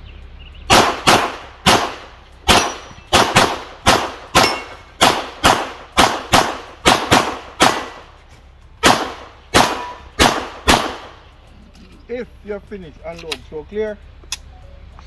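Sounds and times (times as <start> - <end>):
pistol shots: 0.7 - 8.1, 8.8 - 11.2.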